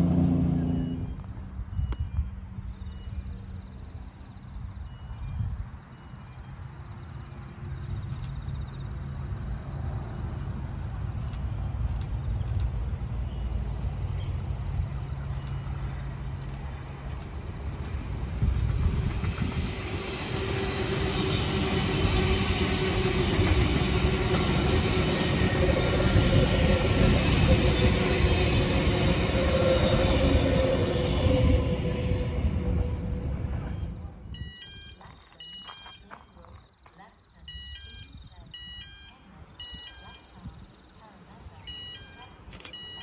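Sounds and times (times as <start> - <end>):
electric train whine: 0.0 - 8.1, 8.8 - 35.7
train wheels rumbling on rails: 9.2 - 37.0.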